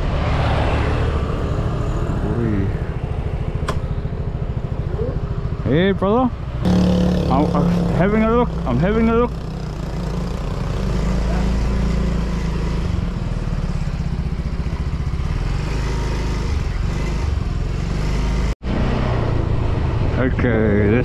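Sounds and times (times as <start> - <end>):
motor scooter running: 6.6 - 18.5.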